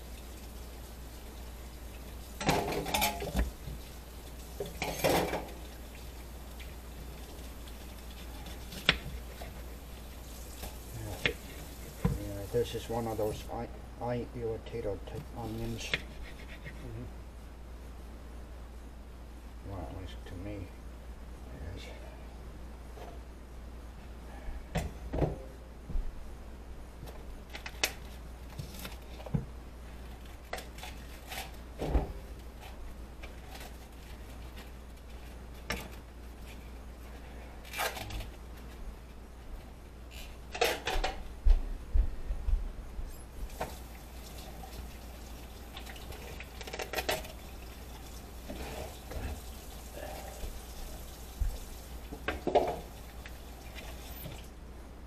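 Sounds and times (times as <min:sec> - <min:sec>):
steady low hum: 0:00.0 - 0:43.5
dishes and pans clinking: 0:02.4 - 0:03.5, 0:04.6 - 0:05.6.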